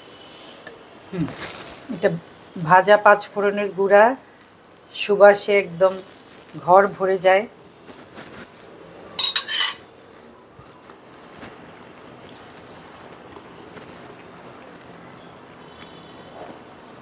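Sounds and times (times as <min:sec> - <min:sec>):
low steady sizzle: 0:00.0 - 0:17.0.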